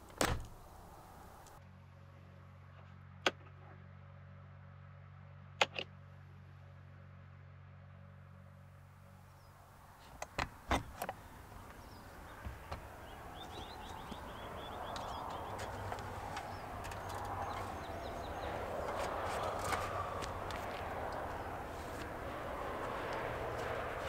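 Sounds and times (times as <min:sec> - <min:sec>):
passing highway traffic: 0:00.0 - 0:24.0
camper door unlatching: 0:00.1 - 0:00.6, 0:10.2 - 0:20.5
bird trilling: 0:11.2 - 0:20.2.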